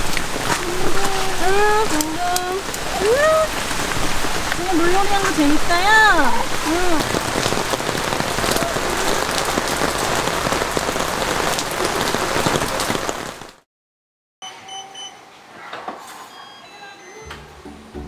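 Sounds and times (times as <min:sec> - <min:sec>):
heavy rain on pavement: 0:00.0 - 0:13.6.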